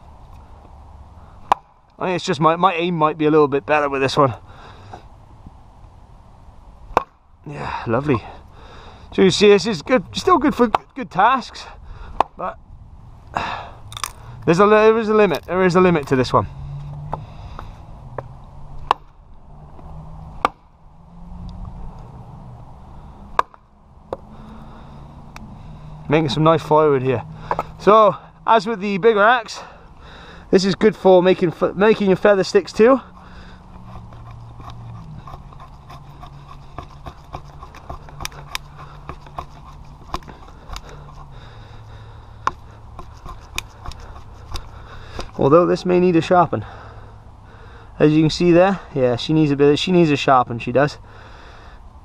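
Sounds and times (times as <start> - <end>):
hatchet chopping wood: 1.4 - 1.8, 6.9 - 7.2, 10.6 - 11.0, 12.1 - 12.4, 18.8 - 19.2, 20.4 - 20.6, 23.3 - 24.3, 27.4 - 27.8, 32.6 - 45.4
steady low hum: 3.1 - 45.6
blade scraping wooden stick: 31.3 - 45.9.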